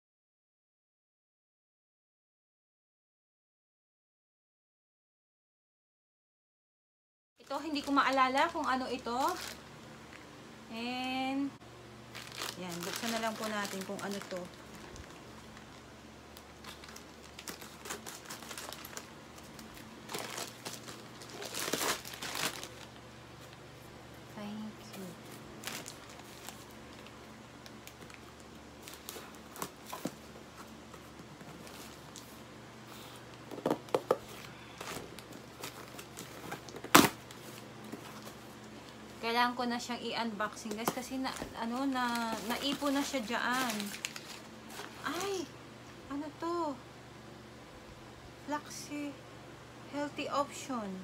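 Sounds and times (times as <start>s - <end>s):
packaging being handled: 7.4s - 9.7s, 12.1s - 23.7s, 24.9s - 32.4s, 33.3s - 39.0s, 40.6s - 45.4s
plastic pouch crinkling and tearing: 7.4s - 9.7s, 12.1s - 23.6s, 25.6s - 30.1s, 40.8s - 45.3s.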